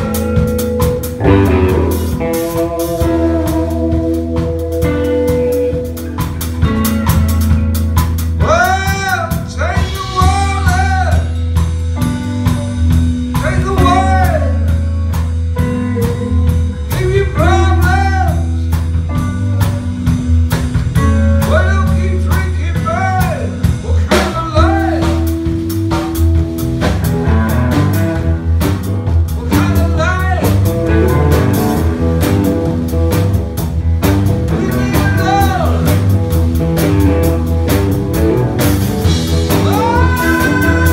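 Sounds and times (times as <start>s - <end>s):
blues-rock band playing: 0.0s - 40.9s
man singing: 8.4s - 11.4s, 13.4s - 14.7s, 16.0s - 18.7s, 21.5s - 25.3s, 29.4s - 30.6s, 34.5s - 36.0s, 39.4s - 40.9s.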